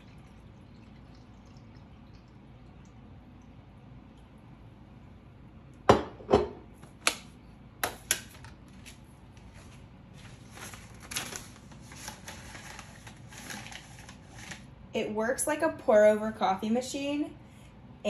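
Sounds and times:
kitchen items knocking: 5.9 - 6.7
paper filter crinkling: 8.7 - 14.7.

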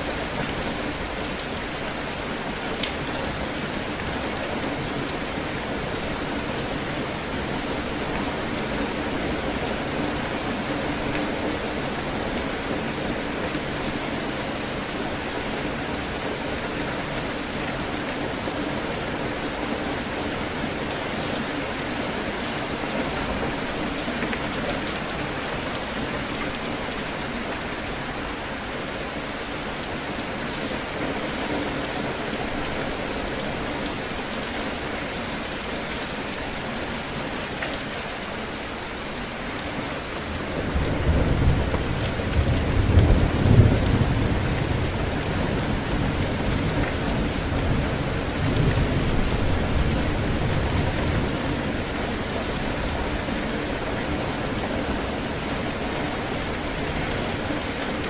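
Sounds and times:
heavy rain pouring on water: 0.0 - 58.0
low rumble of thunder: 40.6 - 51.3.

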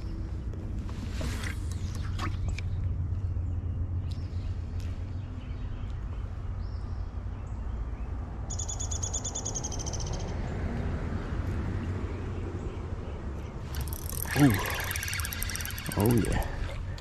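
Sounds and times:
bird trilling: 13.6 - 17.0
faint short chirps: 13.7 - 16.8.

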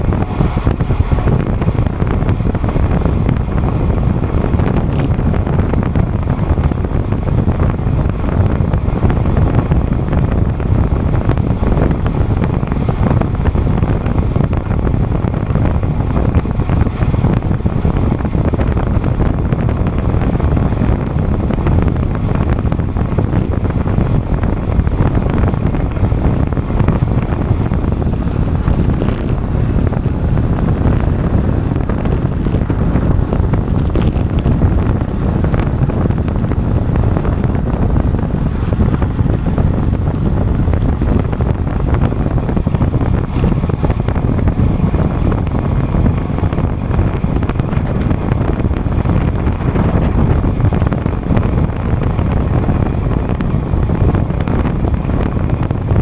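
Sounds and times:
wind noise on microphone: 0.0 - 56.0.

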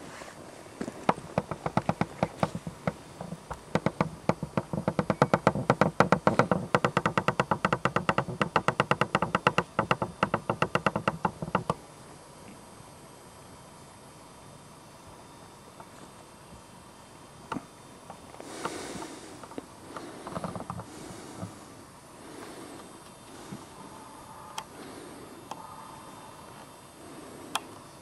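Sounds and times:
tripod head squeaking: 1.4 - 7.3.

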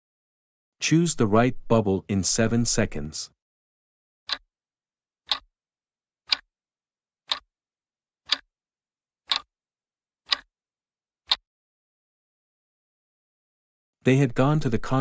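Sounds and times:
clock ticking: 5.3 - 5.5, 6.3 - 6.5, 7.3 - 7.5, 8.3 - 8.5, 9.3 - 9.5, 10.3 - 10.5.

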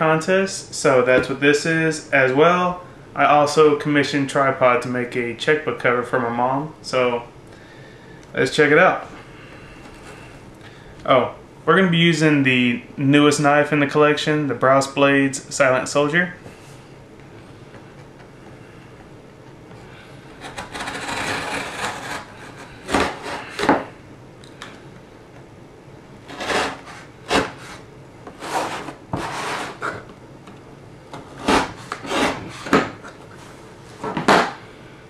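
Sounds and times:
knife slicing cardboard: 26.3 - 27.8, 31.4 - 32.9.

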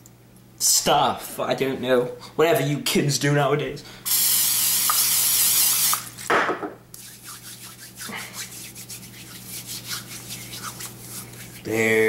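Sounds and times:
spray bottle hissing: 4.1 - 6.1
hands rubbing together: 7.0 - 12.0.

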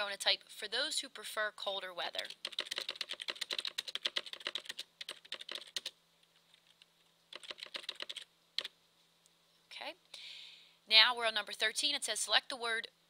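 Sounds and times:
computer keyboard typing: 2.2 - 8.7.

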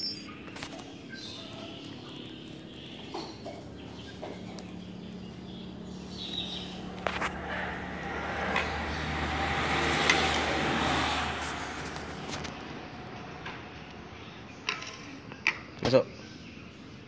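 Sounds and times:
vehicle passing by: 3.6 - 14.6.

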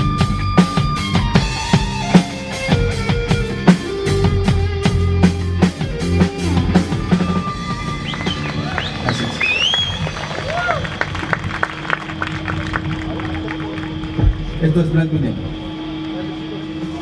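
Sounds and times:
drum kit beat: 0.0 - 12.2
bass guitar: 0.0 - 16.0
electric guitar: 0.0 - 17.0.

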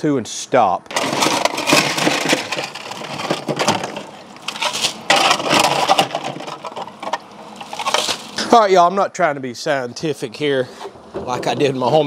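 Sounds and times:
ice cubes clattering: 0.9 - 8.4.

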